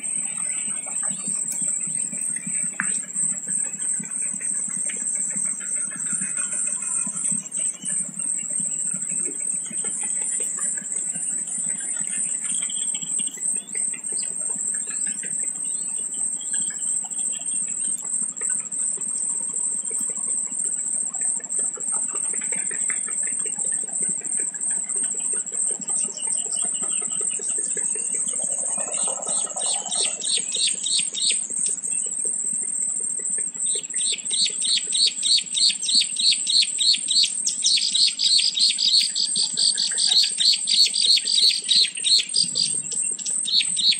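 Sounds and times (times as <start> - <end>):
birdsong: 0.0 - 43.9
high-pitched insect drone: 0.0 - 43.9
repeated bird chirps: 26.0 - 32.1, 33.6 - 43.9.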